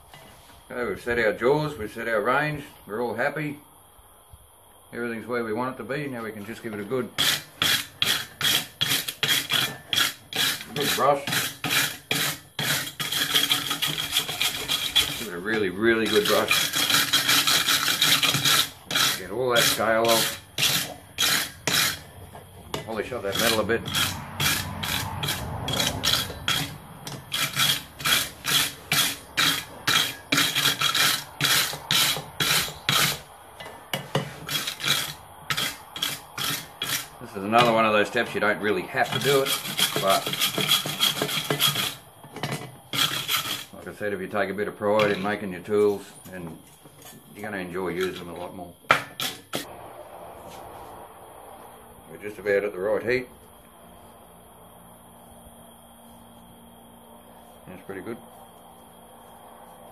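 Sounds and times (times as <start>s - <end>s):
wire brush scratching steel: 6.2s - 49.7s.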